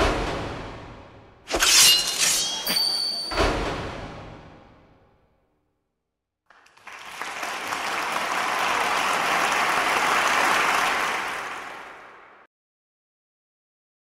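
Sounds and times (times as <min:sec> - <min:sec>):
audience applause: 0:06.5 - 0:12.5.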